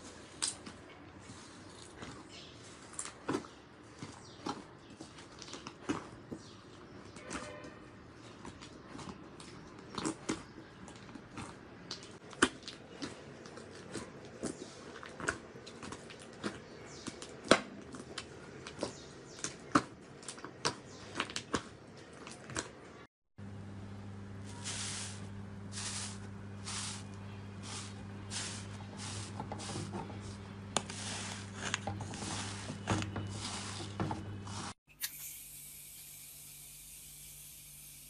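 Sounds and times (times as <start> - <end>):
low steady hum: 23.4 - 34.8.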